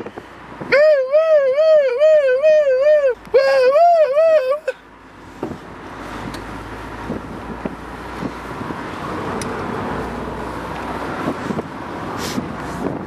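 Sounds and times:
car road rumble: 0.0 - 13.0
wind buffeting microphone: 5.4 - 13.0.

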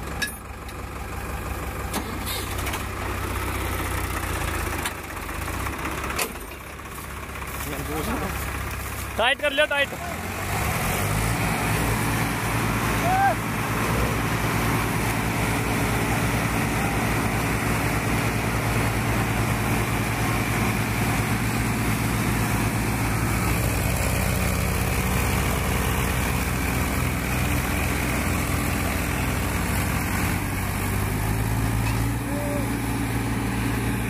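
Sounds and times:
diesel tractor engines running: 0.0 - 34.0.

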